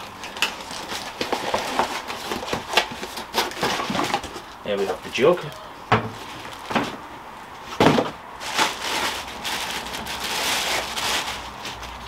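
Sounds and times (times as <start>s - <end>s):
plastic wrapping crinkling: 0.0s - 5.6s, 7.8s - 12.0s.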